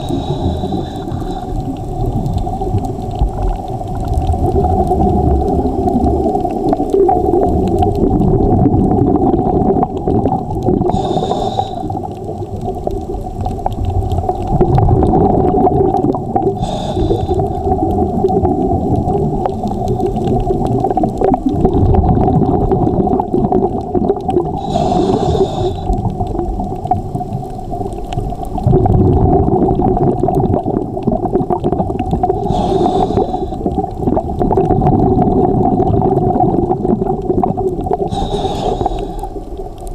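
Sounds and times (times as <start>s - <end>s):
inhalation hiss: 0.0s - 1.6s, 10.9s - 12.0s, 16.6s - 17.7s, 24.6s - 26.0s, 32.4s - 33.7s, 38.1s - 39.6s
diver breathing through regulator: 0.0s - 2.7s, 10.9s - 12.1s, 16.5s - 17.9s, 24.6s - 26.1s, 32.4s - 33.9s, 38.0s - 39.6s.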